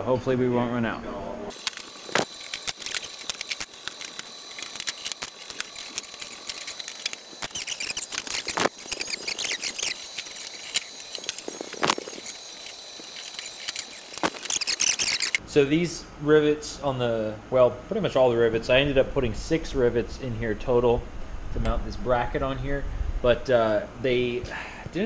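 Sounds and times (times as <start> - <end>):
high squeaking chirps: 1.5 - 15.4.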